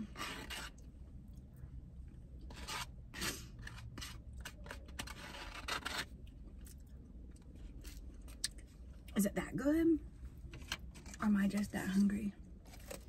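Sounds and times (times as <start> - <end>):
plastic spoon scraping foam cup: 0.0 - 0.9, 2.4 - 6.2, 10.5 - 13.0.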